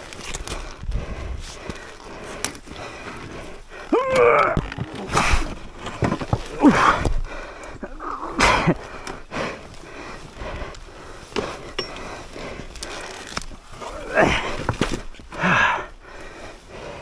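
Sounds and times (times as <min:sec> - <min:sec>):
person panting heavily: 0:00.2 - 0:04.1, 0:05.0 - 0:17.0
grunting breaths: 0:00.2 - 0:17.0.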